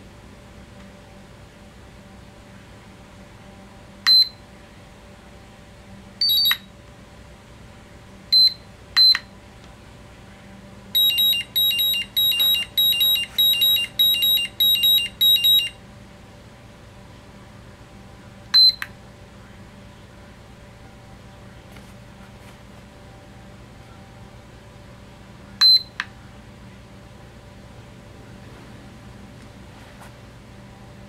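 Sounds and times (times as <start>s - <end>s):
short charger beeps: 6.2s - 6.7s, 11.0s - 15.8s, 25.6s - 25.9s.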